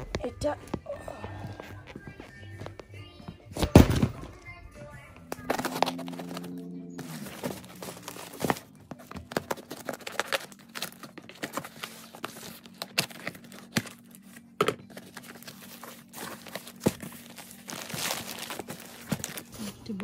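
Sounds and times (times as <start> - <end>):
cardboard box being torn open: 5.5 - 8.7.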